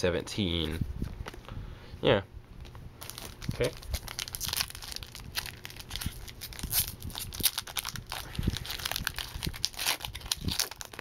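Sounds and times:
foil wrapper crinkling and tearing: 3.0 - 11.0.

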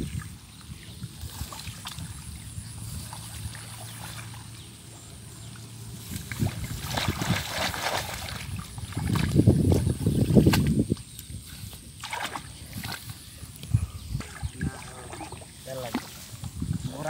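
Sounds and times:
hands splashing in muddy water: 6.0 - 11.1, 12.0 - 13.2.

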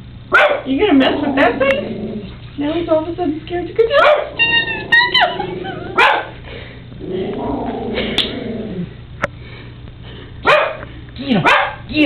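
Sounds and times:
dog barking: 0.3 - 0.7, 4.0 - 4.4, 6.0 - 6.4, 10.4 - 10.8, 11.4 - 11.8
dog growling: 0.9 - 2.4, 4.0 - 9.0
dog whining and yipping: 4.2 - 6.1.

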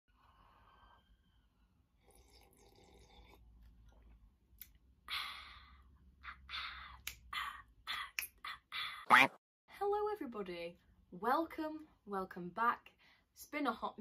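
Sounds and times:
woman sipping from mug: 2.0 - 4.1.

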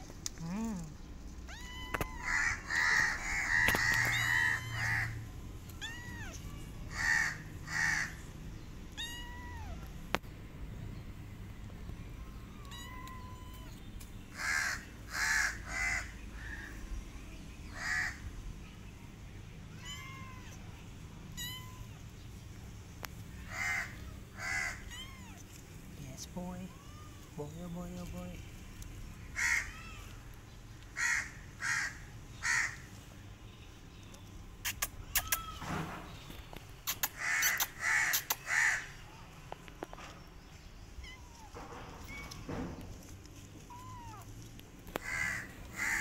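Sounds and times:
kitten mewing: 23.6 - 25.4, 34.6 - 35.6.

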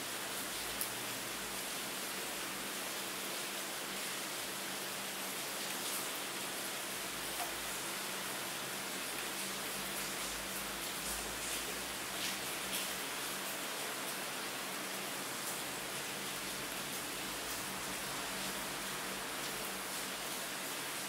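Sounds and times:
steady rain hiss: 0.0 - 21.0
sharp rain ticks: 0.3 - 2.5, 7.0 - 14.2.

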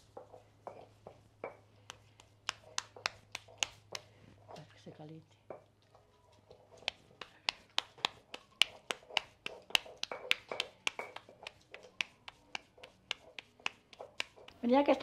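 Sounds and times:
hands slapping dough: 1.8 - 4.1, 6.8 - 15.0.

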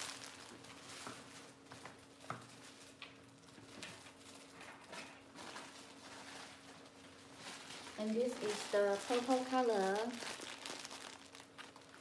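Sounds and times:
bags clicking and rustling: 4.2 - 12.0.

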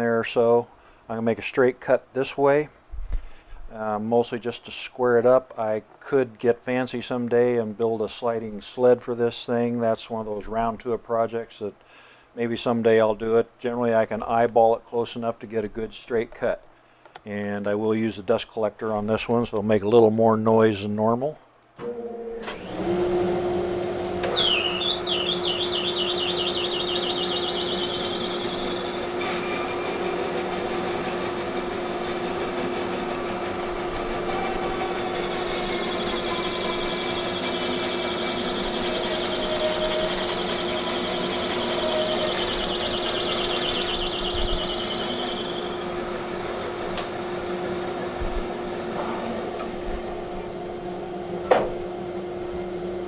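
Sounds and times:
bandsaw and dust collector hum: 21.8 - 53.0
bandsaw blade cutting log: 24.2 - 49.8
high squeal of blade: 24.3 - 30.0, 33.4 - 37.5, 41.7 - 46.0.

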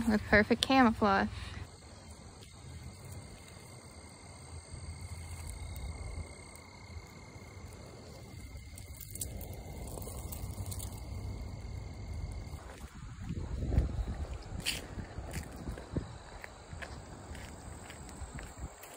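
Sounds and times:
high insect trill: 0.0 - 18.9
low rumble on microphone: 9.2 - 17.4.

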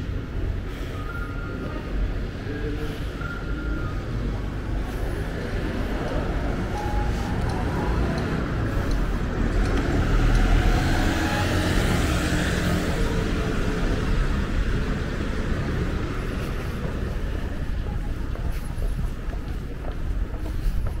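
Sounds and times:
street noise: 0.0 - 21.0
motor vehicle passing: 4.4 - 17.6.

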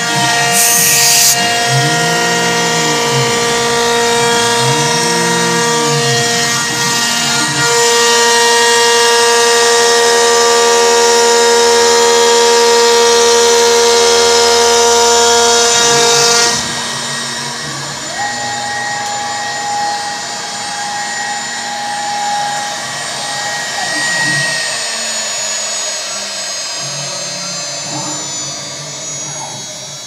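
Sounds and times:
router spindle whine: 0.0 - 30.0
cutting hiss: 0.4 - 1.4.

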